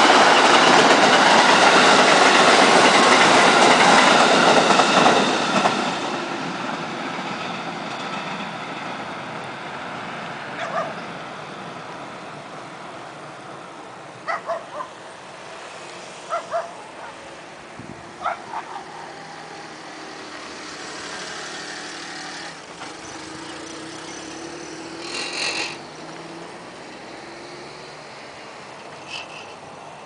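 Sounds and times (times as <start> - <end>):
electric train passing: 0.0 - 30.0
dog barking: 10.6 - 11.0, 14.2 - 14.9, 16.3 - 17.2, 18.2 - 18.8.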